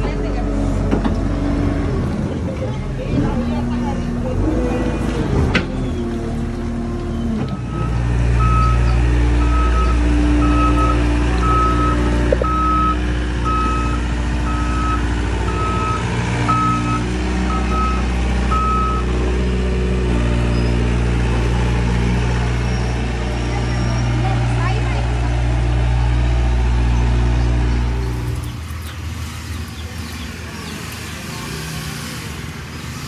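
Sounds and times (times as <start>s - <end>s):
excavator diesel engine running: 0.0s - 33.0s
travel alarm beeping: 7.5s - 19.1s.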